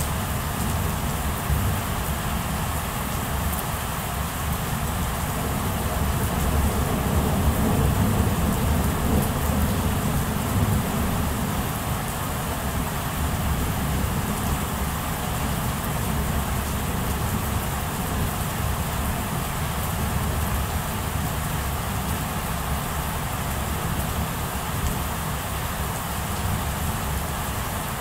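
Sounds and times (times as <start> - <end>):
steady rain: 0.0 - 28.0
thunder rumbling: 4.8 - 19.3.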